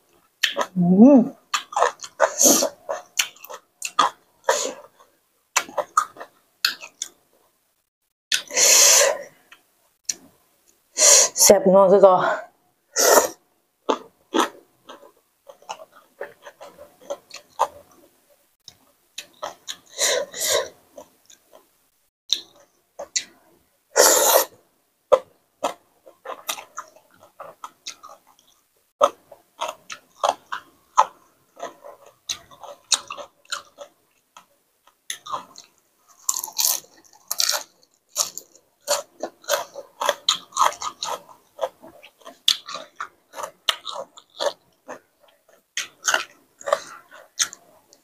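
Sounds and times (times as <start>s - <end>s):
chewing and mouth smacks: 25.1s - 48.0s.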